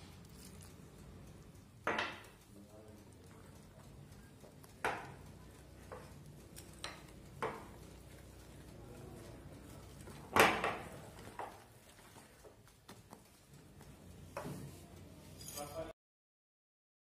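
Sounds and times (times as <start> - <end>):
whisk beating batter: 4.8 - 10.2.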